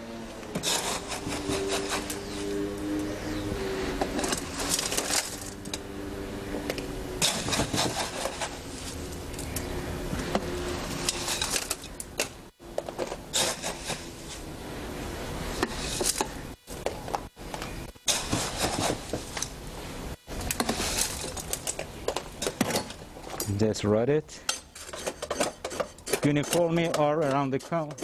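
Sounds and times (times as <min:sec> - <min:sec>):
scoop scraping wet concrete: 0:00.5 - 0:05.6, 0:07.2 - 0:09.1, 0:13.3 - 0:14.4, 0:18.0 - 0:19.4, 0:20.5 - 0:21.5, 0:24.8 - 0:28.0.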